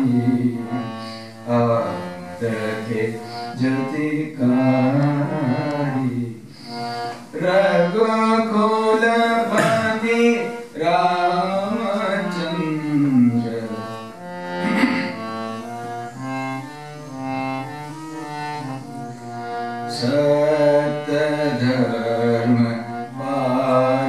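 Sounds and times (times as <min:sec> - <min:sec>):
man singing: 0:00.0 - 0:14.2, 0:19.8 - 0:24.0
harmonium melody: 0:00.0 - 0:24.0.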